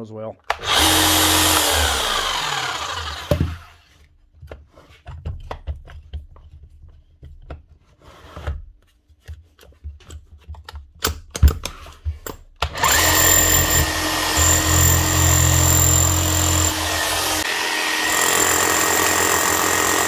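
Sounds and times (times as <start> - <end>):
power tool motor spinning down: 0.6 - 3.8, 12.7 - 20.0.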